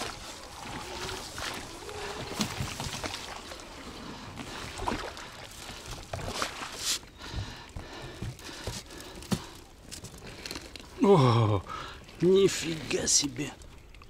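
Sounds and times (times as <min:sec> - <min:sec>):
water splashing around boat: 0:00.0 - 0:14.0.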